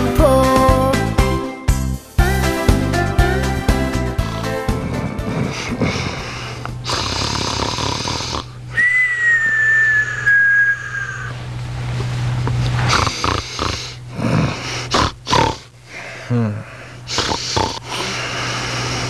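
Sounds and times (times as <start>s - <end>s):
person snoring: 4.2s - 8.6s, 12.9s - 19.0s.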